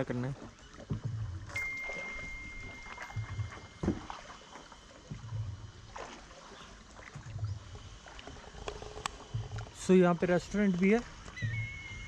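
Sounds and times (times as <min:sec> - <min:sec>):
water swishing and lapping: 0:00.0 - 0:12.0
thin high tone: 0:01.5 - 0:05.0.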